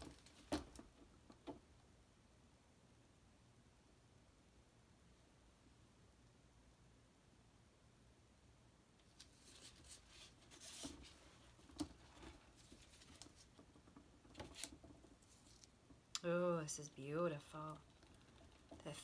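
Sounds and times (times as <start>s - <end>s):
canvas rustling and scratching: 9.1s - 15.7s.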